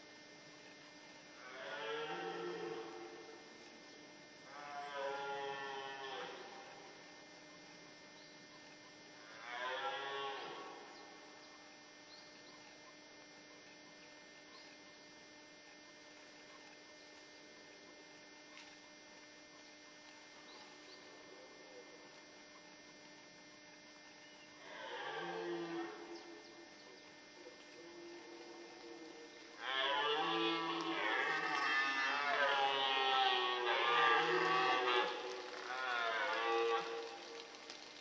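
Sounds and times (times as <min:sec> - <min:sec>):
faint steady hum: 0:00.0 - 0:38.0
deer stag roaring: 0:01.4 - 0:03.3, 0:24.6 - 0:26.2, 0:27.7 - 0:37.8.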